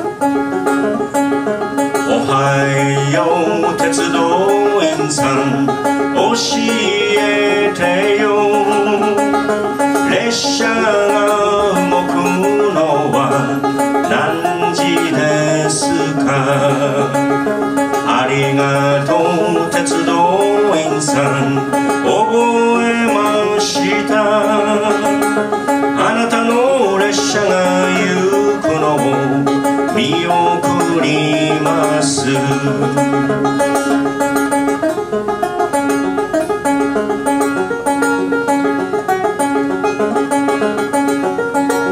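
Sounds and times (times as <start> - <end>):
banjo picking: 0.0 - 41.9
man singing: 2.0 - 33.7.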